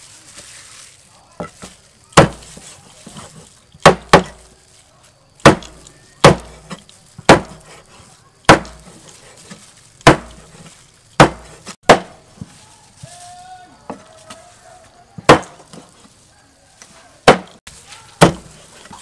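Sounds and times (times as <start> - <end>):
cleaver chopping on wooden block: 2.2 - 2.6, 3.8 - 4.4, 5.4 - 7.8, 8.5 - 8.9, 10.0 - 10.5, 11.2 - 12.2, 15.3 - 15.8, 17.2 - 17.6, 18.2 - 18.6.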